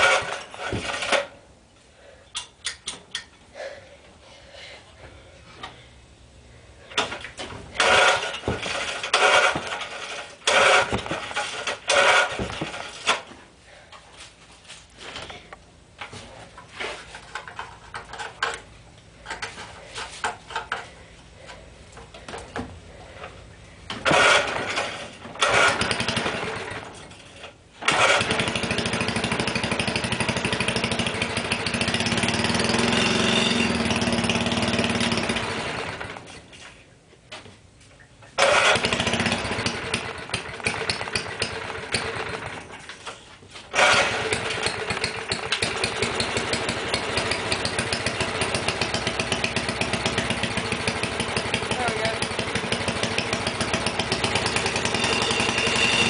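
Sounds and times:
engine sputtering on pull-start: 0:00.0 - 0:01.4, 0:06.9 - 0:13.3, 0:23.9 - 0:36.4, 0:38.4 - 0:43.1, 0:43.7 - 0:56.0
tiller engine running: 0:00.0 - 0:01.4, 0:06.8 - 0:13.4, 0:21.9 - 0:36.6, 0:38.4 - 0:56.0.

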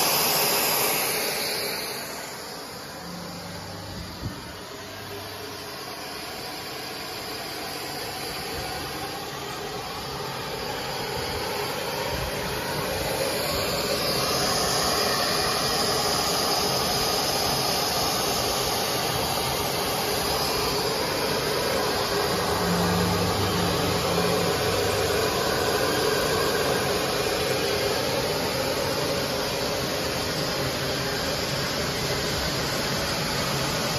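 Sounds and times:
short low hum: 0:02.8 - 0:05.6
machinery motors whirring: 0:19.8 - 0:26.4.

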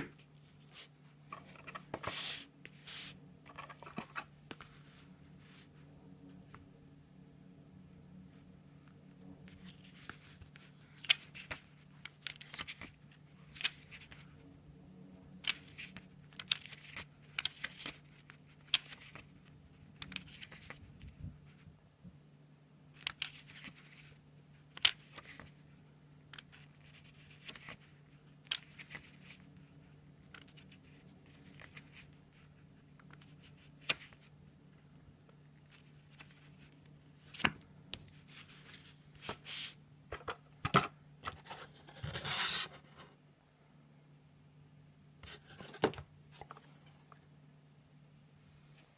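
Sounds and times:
cards sliding over cardboard: 0:00.5 - 0:05.7, 0:41.2 - 0:43.2.

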